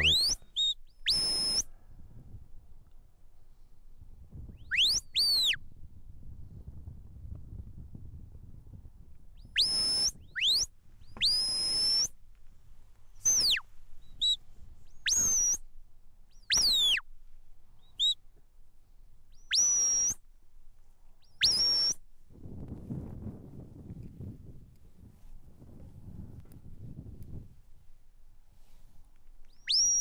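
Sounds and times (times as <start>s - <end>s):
shepherd's whistle notes: 0.0s - 1.8s, 4.6s - 5.6s, 9.4s - 12.2s, 13.2s - 15.6s, 16.3s - 17.0s, 17.8s - 18.2s, 19.3s - 20.2s, 21.2s - 22.0s, 29.5s - 30.0s
light wind noise: 0.0s - 30.0s.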